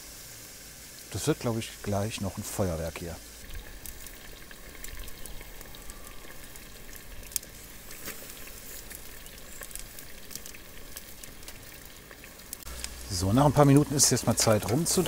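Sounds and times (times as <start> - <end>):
steaks sizzling on grill: 0.0 - 15.0.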